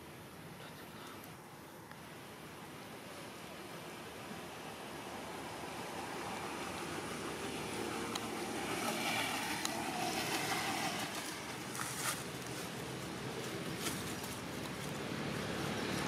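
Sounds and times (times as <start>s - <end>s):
steady outdoor background noise: 0.0s - 16.0s.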